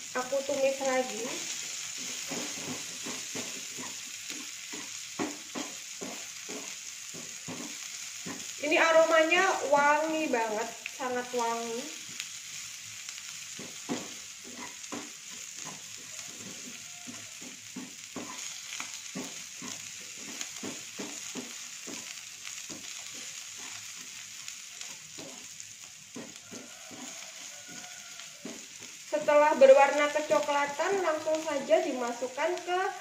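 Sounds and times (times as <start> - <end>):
vegetables sizzling in frying pan: 0.0 - 33.0
wooden spatula scraping pan: 1.5 - 8.5, 13.6 - 24.2, 25.1 - 25.5, 26.1 - 29.0.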